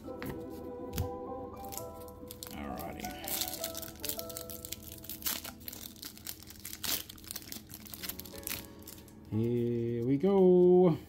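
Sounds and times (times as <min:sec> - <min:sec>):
foil wrapper tearing and crinkling: 0:01.6 - 0:09.4.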